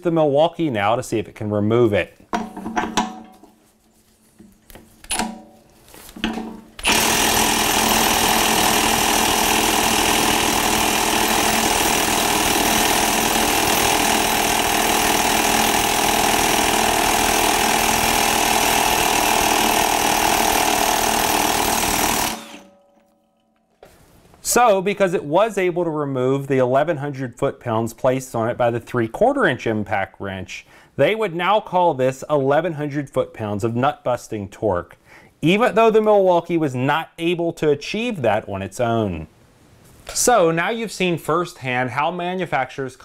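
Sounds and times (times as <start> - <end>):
impact wrench hammering: 2.3 - 3.4, 6.2 - 23.3.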